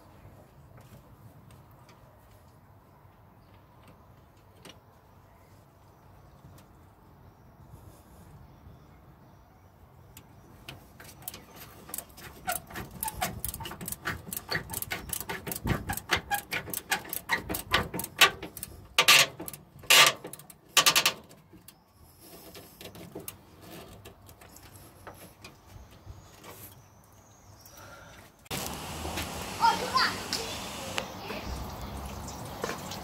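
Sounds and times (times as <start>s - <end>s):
hand ratchet clicking: 11.2s - 21.2s.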